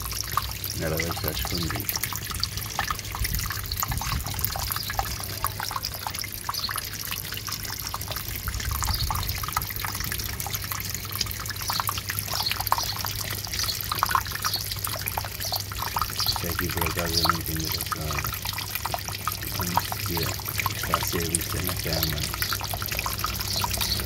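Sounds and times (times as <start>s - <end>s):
pond fountain splashing: 0.0s - 24.0s.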